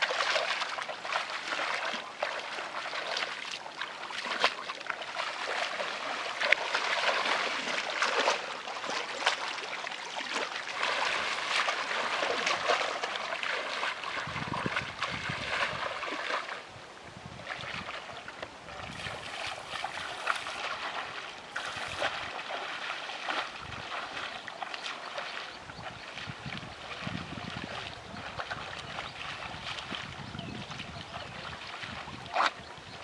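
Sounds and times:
muddy water splashing: 0.0s - 33.0s.

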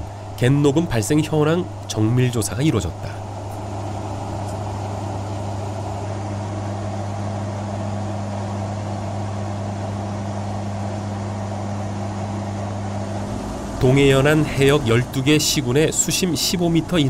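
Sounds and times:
engine and air rush: 0.0s - 17.0s
higher hum: 0.0s - 17.0s
propeller hum: 0.0s - 17.0s.

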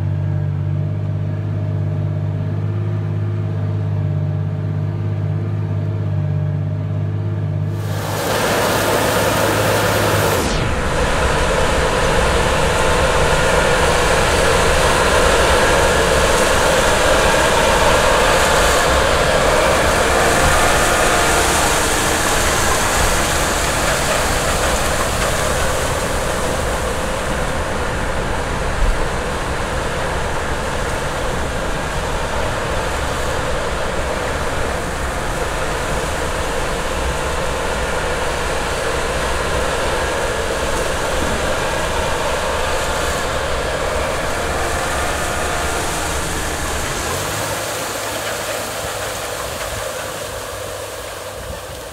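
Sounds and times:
tractor engine running: 0.0s - 51.9s.

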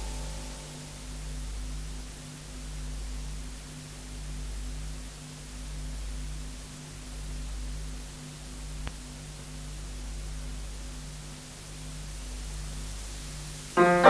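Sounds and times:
steady hum: 0.0s - 3.7s
cassette tape hiss: 0.0s - 14.0s.

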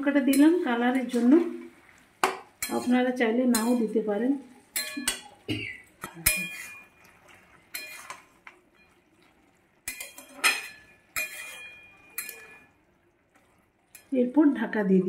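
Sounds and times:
metal spatula clanking in pot: 0.2s - 1.3s, 2.2s - 4.0s, 4.7s - 7.0s, 7.7s - 8.9s, 9.8s - 12.8s.

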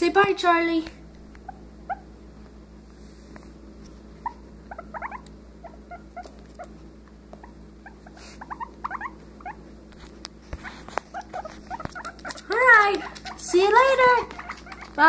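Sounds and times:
guinea pig squeaking: 1.4s - 2.2s, 4.2s - 9.6s, 10.6s - 15.0s.

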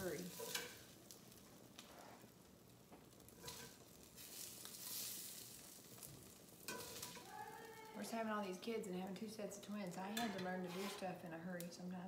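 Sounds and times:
spatula scraping a pan: 0.0s - 0.9s, 3.3s - 5.6s, 6.7s - 7.3s, 10.1s - 11.2s
sausages sizzling in a skillet: 0.0s - 8.5s.

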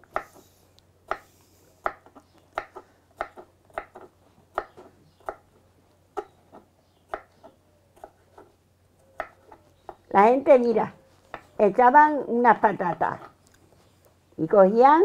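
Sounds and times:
knife chopping on wooden board: 0.1s - 0.4s, 1.1s - 5.4s, 6.2s - 8.6s.

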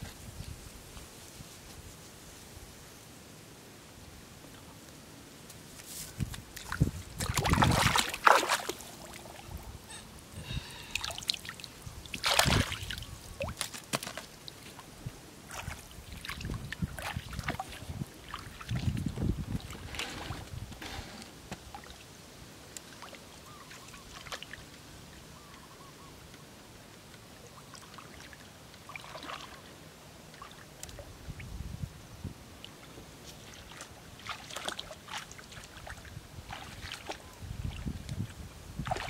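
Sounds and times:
footsteps sloshing through water: 5.7s - 9.4s, 11.0s - 20.5s, 27.5s - 29.7s, 33.3s - 39.0s.

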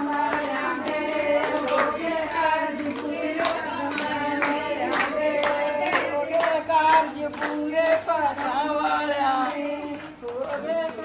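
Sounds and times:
folk singing by high voices: 0.0s - 11.0s
hand claps: 0.0s - 11.0s.

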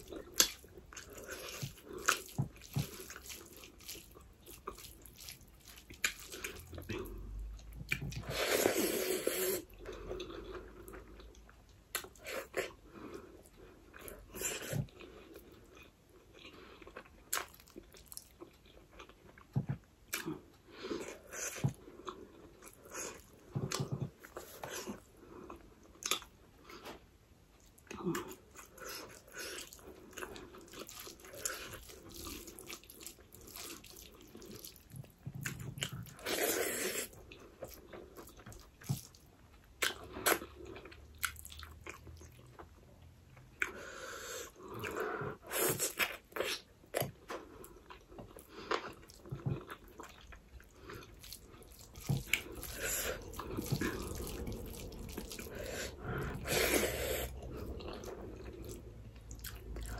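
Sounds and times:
chewing with wet mouth clicks: 9.9s - 12.7s, 45.8s - 59.9s.

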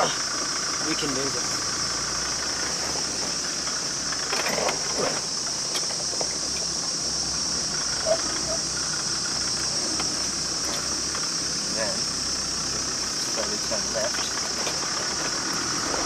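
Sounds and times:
diesel engine low rumble: 0.0s - 16.0s
high-pitched insect buzz: 0.0s - 16.0s.

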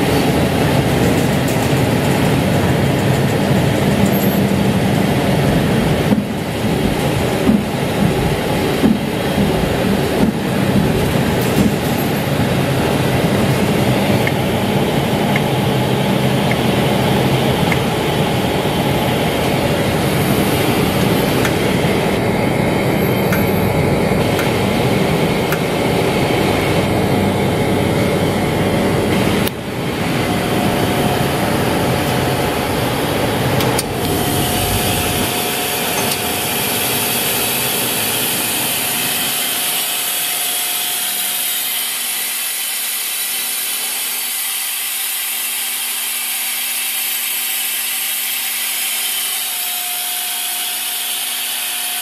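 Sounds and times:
machine equipment hum and hiss: 0.0s - 52.0s
heavy low rumble: 4.7s - 37.2s.

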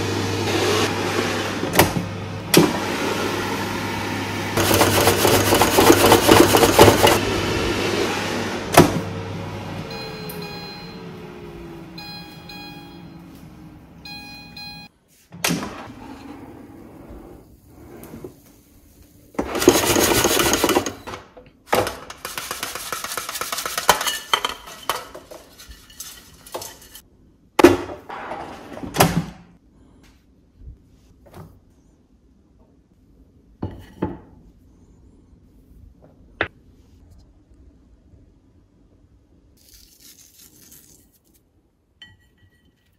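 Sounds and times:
fan humming: 0.0s - 27.0s
air fryer beeping: 2.7s - 14.9s.

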